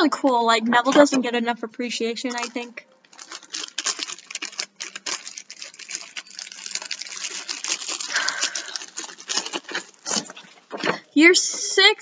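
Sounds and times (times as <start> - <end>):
packaging rustling and crinkling: 2.3 - 10.8.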